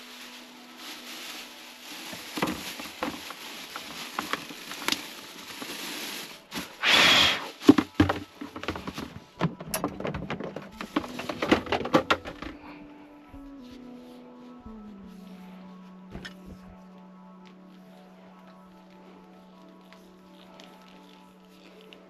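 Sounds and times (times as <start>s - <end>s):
plastic bag crinkling: 0.0s - 12.7s.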